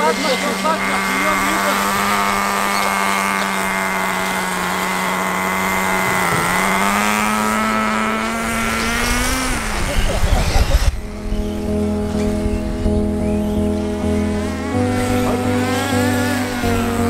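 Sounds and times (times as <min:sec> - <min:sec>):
rc car engines buzzing: 0:00.0 - 0:17.0.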